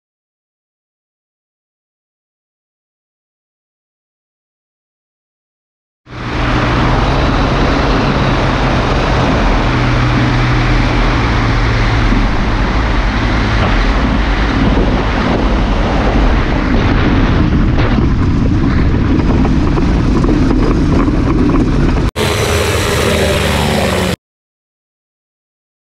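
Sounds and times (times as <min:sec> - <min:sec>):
microlight engine and propeller: 0:06.1 - 0:24.2.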